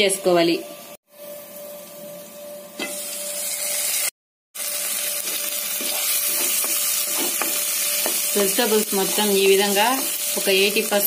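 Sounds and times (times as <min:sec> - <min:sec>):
vegetables sizzling in oil: 0:02.8 - 0:11.0.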